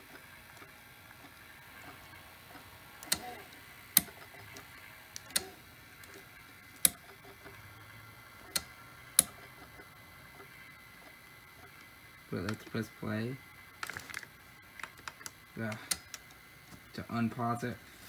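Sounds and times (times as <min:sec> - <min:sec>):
vcr frame advance clicks: 0:02.6 - 0:07.6, 0:08.4 - 0:09.8, 0:13.8 - 0:16.9.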